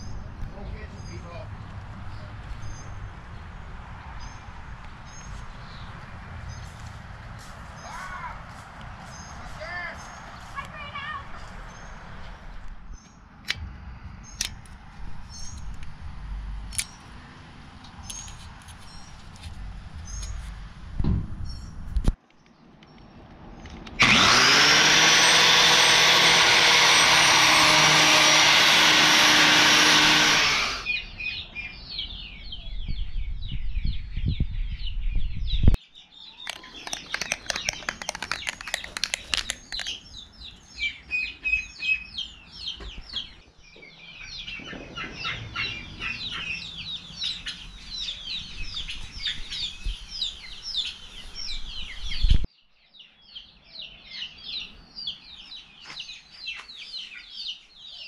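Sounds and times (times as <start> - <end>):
birds chirping: 0.0 - 15.9, 21.4 - 58.0
angle grinder cutting steel: 24.0 - 30.9
chickens clucking: 44.2 - 47.7.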